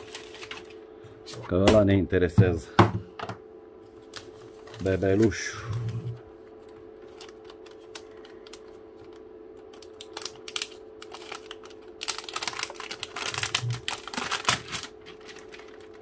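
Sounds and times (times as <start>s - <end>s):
faint steady hum: 0.0s - 16.0s
metallised bag crinkling: 7.0s - 16.0s.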